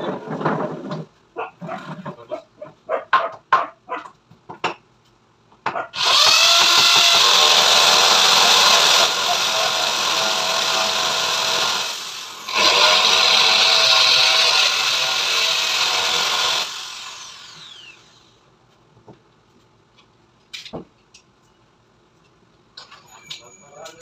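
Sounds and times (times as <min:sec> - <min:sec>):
electric drill boring into wall: 0:06.0 - 0:18.3.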